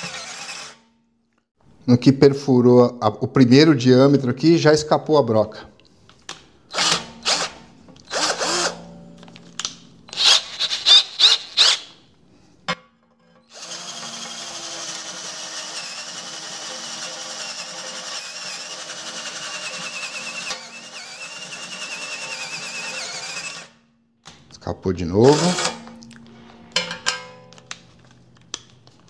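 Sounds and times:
cordless drill whining: 0.0 - 0.8, 6.7 - 8.7, 10.1 - 12.0, 13.5 - 23.7
short loud drill bursts: 10.2 - 11.9.

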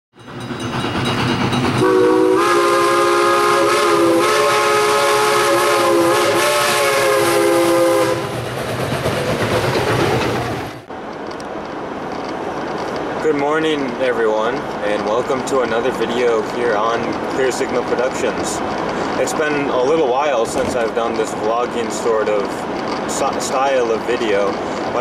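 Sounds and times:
moving train rumble and clatter: 0.2 - 25.0
train horn chord: 1.8 - 8.3.

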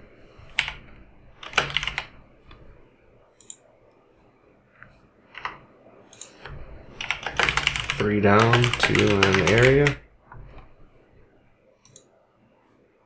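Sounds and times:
computer keyboard typing: 0.5 - 2.2, 7.0 - 10.0.

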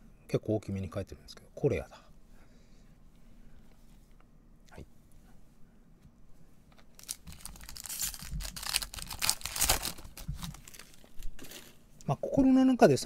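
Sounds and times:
foil wrapper tearing and crinkling: 6.9 - 11.8.

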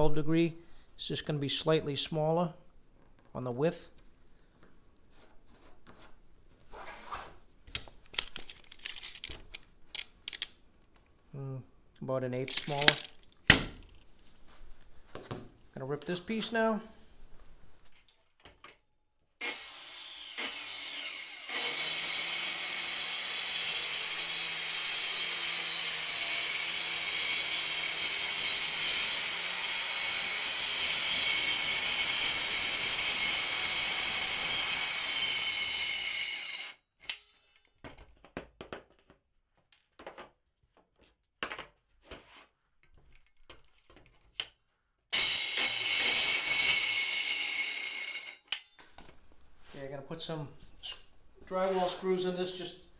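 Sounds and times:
circular saw cutting plywood: 19.4 - 36.8, 45.2 - 48.4.

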